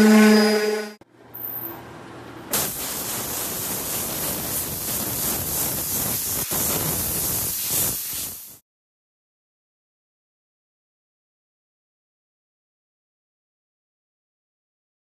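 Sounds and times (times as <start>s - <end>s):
hiss of blown air: 2.5s - 8.6s.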